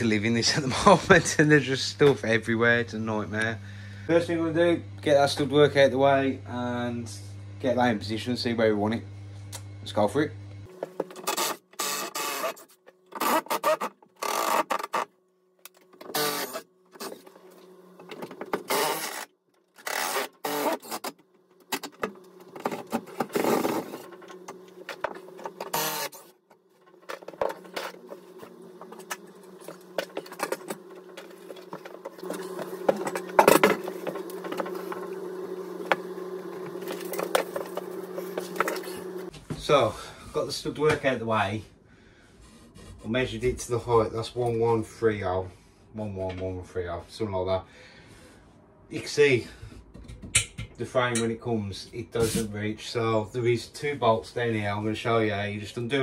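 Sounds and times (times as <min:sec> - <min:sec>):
cordless power tool running: 0:10.7 - 0:12.6, 0:16.0 - 0:21.1, 0:21.8 - 0:26.3, 0:27.0 - 0:39.3.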